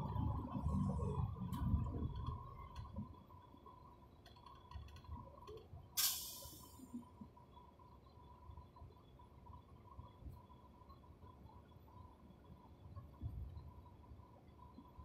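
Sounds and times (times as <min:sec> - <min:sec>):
bus engine rumble: 0:00.0 - 0:15.0
faint steady whine: 0:00.0 - 0:15.0
compressed air hiss: 0:06.0 - 0:06.8.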